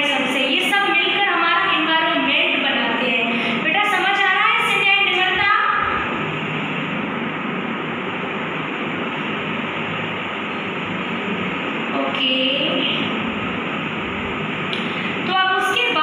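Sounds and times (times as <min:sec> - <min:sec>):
woman speaking: 0:00.0 - 0:06.1, 0:11.9 - 0:13.1, 0:15.2 - 0:16.0
steady rushing noise: 0:00.0 - 0:16.0.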